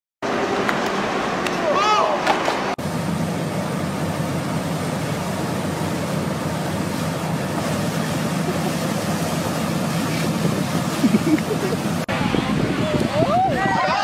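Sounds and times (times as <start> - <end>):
heavy truck machinery running: 0.2 - 12.8
water jet gushing from pipe: 2.8 - 12.1.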